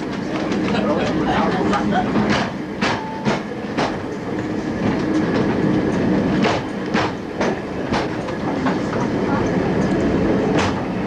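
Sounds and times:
tramcar running rumble: 0.0 - 11.0.

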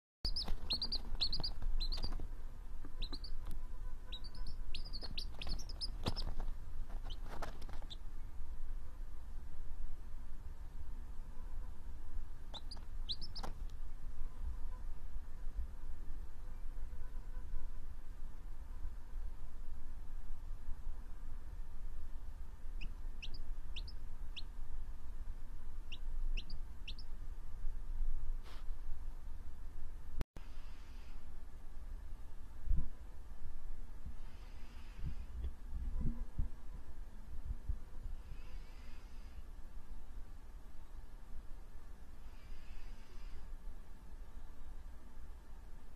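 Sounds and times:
baby chick peeping: 0.3 - 8.1, 12.5 - 13.8, 22.8 - 24.5, 25.8 - 27.1.

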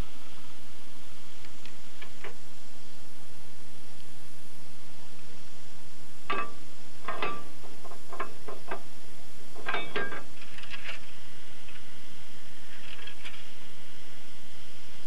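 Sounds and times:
iron bar clinking on metal: 6.3 - 8.8, 9.6 - 10.3.

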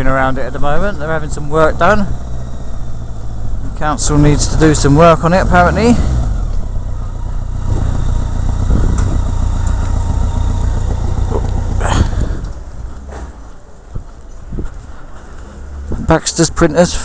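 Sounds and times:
wind and road noise: 0.0 - 17.0
motorcycle engine running: 0.6 - 13.6.

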